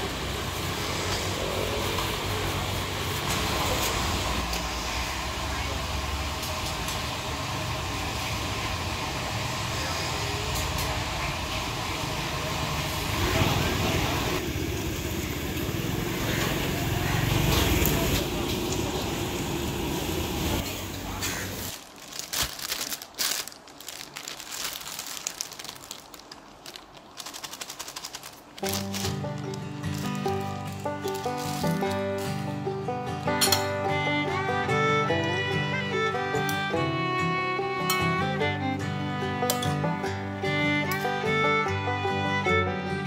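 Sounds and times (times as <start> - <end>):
hum of stalls and road: 0.0 - 43.0
paper wrapper crinkling: 21.2 - 32.3.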